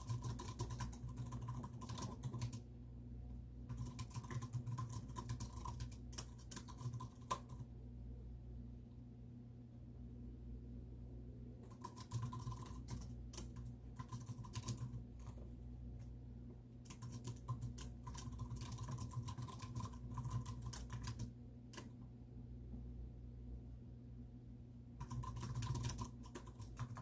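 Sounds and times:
typing on computer keyboard: 0:00.0 - 0:02.6, 0:03.7 - 0:07.7, 0:11.6 - 0:15.4, 0:16.8 - 0:22.0, 0:25.0 - 0:27.0
low hum: 0:07.4 - 0:11.8, 0:21.2 - 0:25.1.

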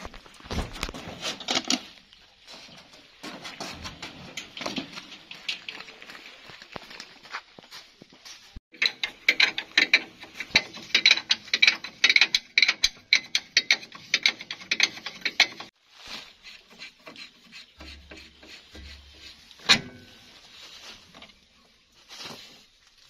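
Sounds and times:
metal handling: 0:08.7 - 0:15.7, 0:18.7 - 0:20.4
ratcheting wrench clicking: 0:08.8 - 0:15.7.

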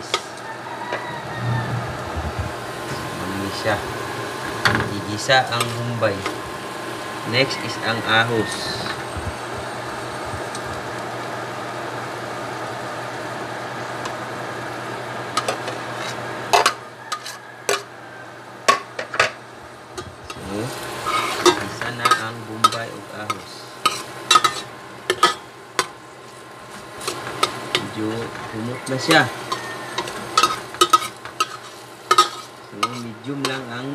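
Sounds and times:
onion and garlic sizzling in oil: 0:00.0 - 0:01.3, 0:02.2 - 0:33.9
metal spatula scraping a pot: 0:16.0 - 0:17.8, 0:21.0 - 0:22.9, 0:23.8 - 0:25.4, 0:27.0 - 0:33.6.

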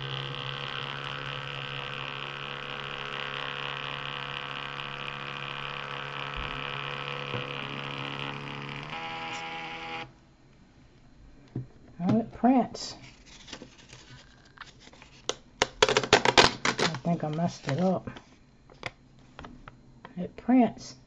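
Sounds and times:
thermal printer motor buzzing: 0:00.0 - 0:10.2.

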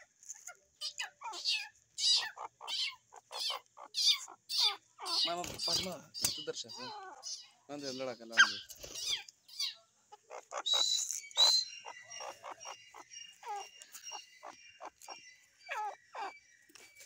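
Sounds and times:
bird calling sharp notes: 0:00.9 - 0:16.9.

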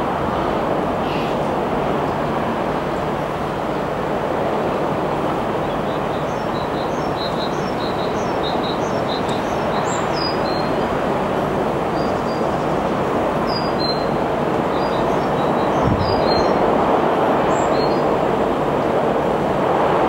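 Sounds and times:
small birds chirping: 0:05.6 - 0:10.9.

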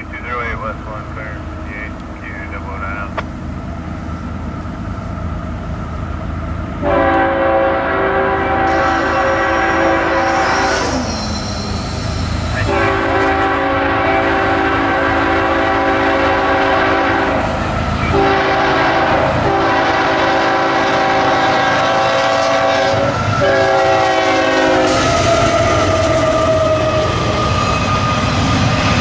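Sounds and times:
locomotive engine rumble: 0:00.0 - 0:29.0
locomotive air horn blasts: 0:06.8 - 0:27.1.

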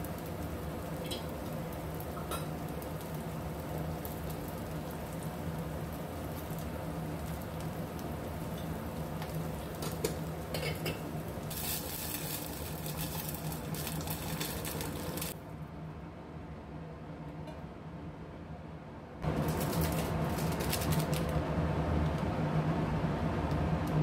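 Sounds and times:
vegetables sizzling in oil: 0:00.0 - 0:15.4, 0:19.2 - 0:21.3
water hissing in hot pot: 0:11.4 - 0:15.4.

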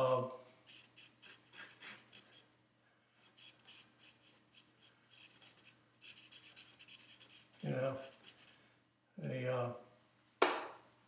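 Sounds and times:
pencil scratching on paper: 0:00.7 - 0:02.5, 0:03.2 - 0:08.6.

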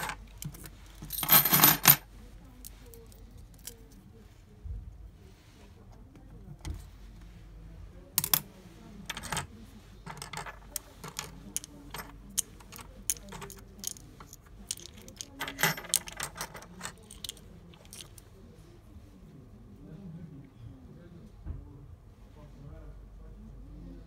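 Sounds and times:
keys clacking on wooden table: 0:00.0 - 0:02.0, 0:10.1 - 0:18.2
keys clinking together: 0:00.0 - 0:02.0, 0:10.1 - 0:18.2.

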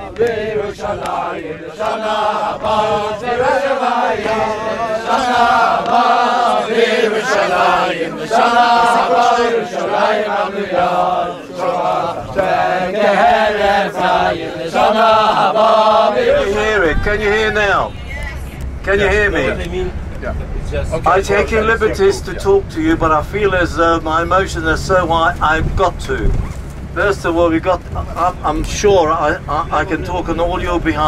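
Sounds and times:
voices chanting: 0:00.0 - 0:20.0.

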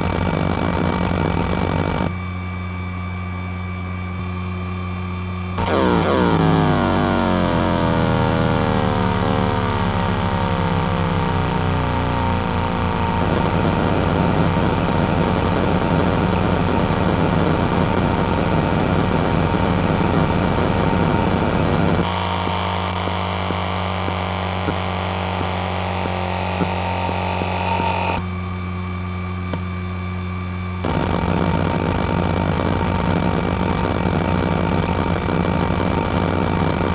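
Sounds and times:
hard drive seek chatter: 0:00.0 - 0:02.1, 0:13.2 - 0:28.2, 0:30.8 - 0:36.9
hard drive spindle hum: 0:00.0 - 0:02.7, 0:05.4 - 0:28.5, 0:30.8 - 0:36.9.

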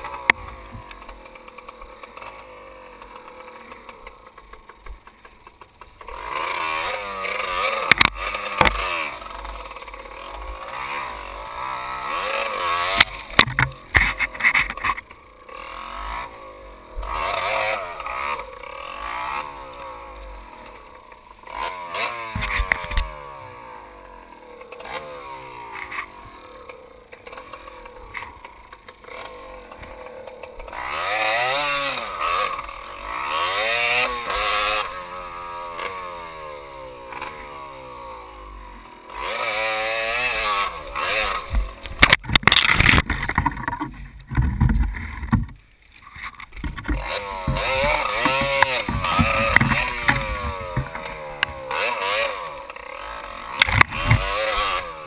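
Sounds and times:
dirt bike engine revving: 0:00.0 - 0:55.0
sharp knocks and clatter: 0:12.9 - 0:15.0, 0:41.3 - 0:51.9, 0:53.5 - 0:54.7.

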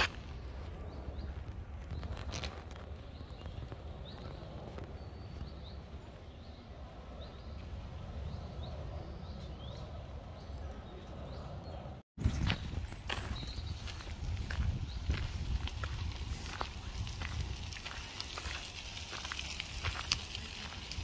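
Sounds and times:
footsteps on path: 0:00.0 - 0:05.8, 0:12.2 - 0:21.0
wind rumble on microphone: 0:00.0 - 0:21.0
bird chirping: 0:00.8 - 0:16.7.

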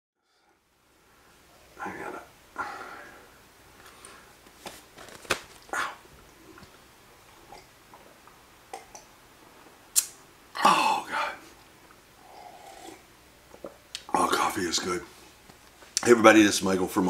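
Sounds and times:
person sipping coffee: 0:07.4 - 0:09.1, 0:10.0 - 0:13.8.

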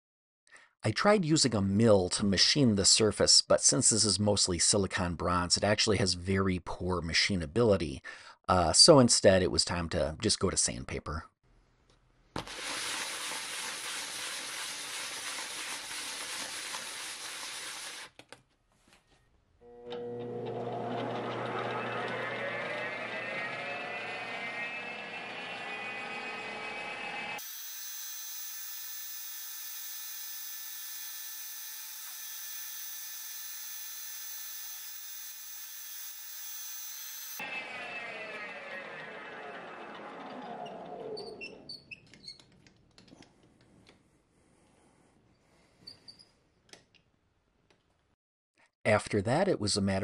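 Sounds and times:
motor whine: 0:27.4 - 0:37.4.

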